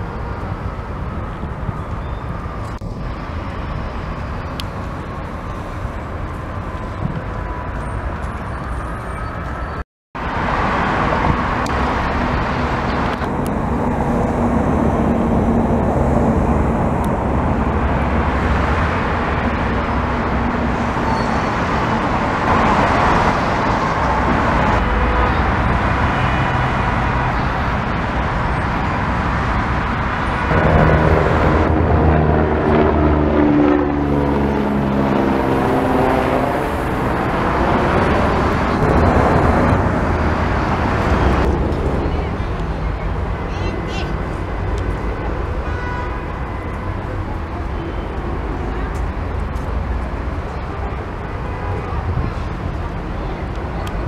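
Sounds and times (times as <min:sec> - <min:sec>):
road traffic passing: 0:00.0 - 0:54.0
helicopter passing overhead: 0:11.0 - 0:45.6.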